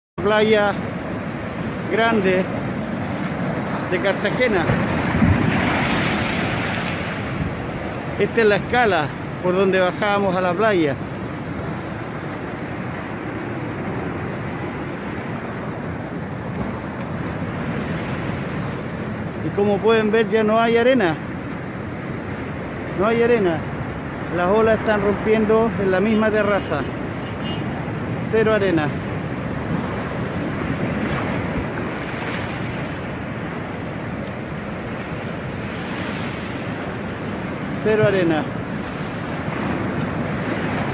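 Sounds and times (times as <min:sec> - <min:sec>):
sea surf breaking: 0:00.2 - 0:40.9
wind buffeting microphone: 0:00.8 - 0:09.4.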